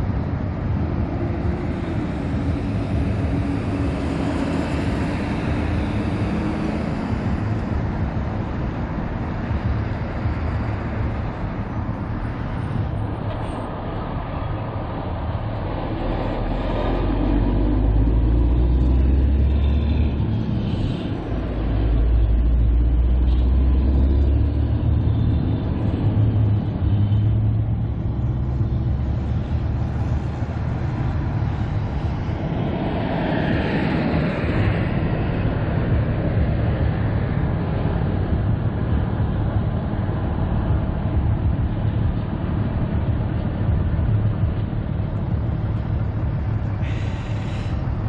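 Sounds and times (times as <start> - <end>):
loud rush of noise: 0.0 - 48.0
road and traffic noise: 0.0 - 48.0
wind buffeting microphone: 0.0 - 48.0.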